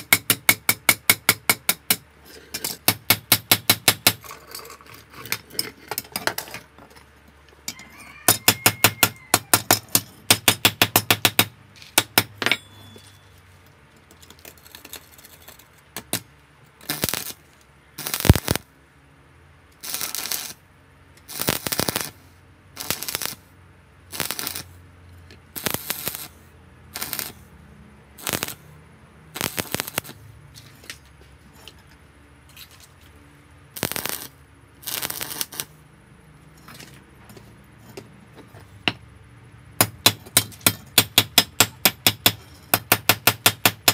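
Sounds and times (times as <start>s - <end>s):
hammer striking iron rod: 8.3s - 13.1s, 39.8s - 43.9s
welding arc crackle: 14.5s - 18.7s, 19.8s - 20.6s, 21.2s - 22.2s, 22.8s - 23.5s, 24.1s - 24.8s, 25.5s - 27.5s, 28.2s - 28.7s, 29.3s - 30.2s, 33.7s - 35.8s.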